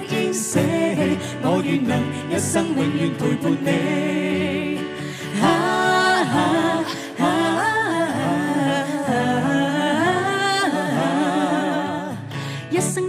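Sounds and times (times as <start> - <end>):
acoustic guitar: 0.0 - 13.0
voices singing in harmony: 0.0 - 13.0.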